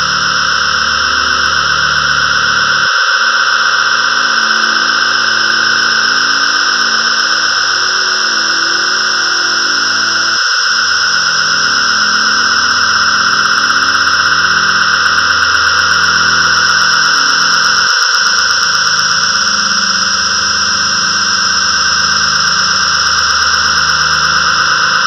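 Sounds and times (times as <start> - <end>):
held low synth chord: 0.0 - 2.9.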